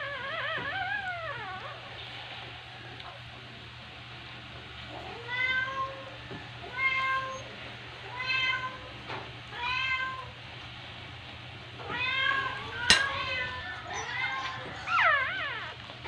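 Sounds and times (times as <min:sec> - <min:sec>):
puppies whining: 0:00.0 - 0:02.5, 0:04.9 - 0:07.7, 0:12.1 - 0:16.0.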